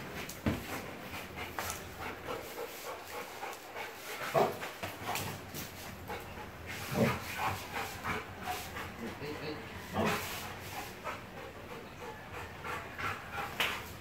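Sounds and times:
dog panting: 0.5s - 14.0s.

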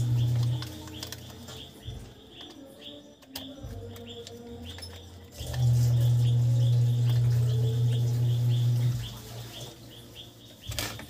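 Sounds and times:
bird chirping: 0.0s - 11.0s
sharp clicks: 0.2s - 5.7s.

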